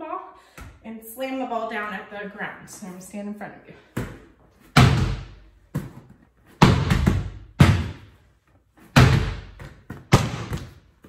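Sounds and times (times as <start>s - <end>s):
volleyball smacking the floor: 4.0s - 8.1s, 8.8s - 10.9s.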